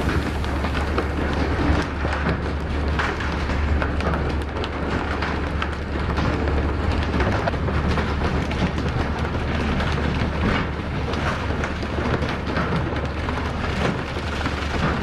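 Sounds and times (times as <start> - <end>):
steady low hum: 0.0 - 7.2.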